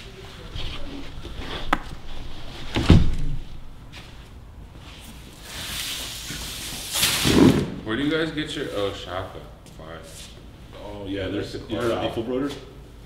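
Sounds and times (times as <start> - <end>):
heavy thud: 2.6 - 3.6.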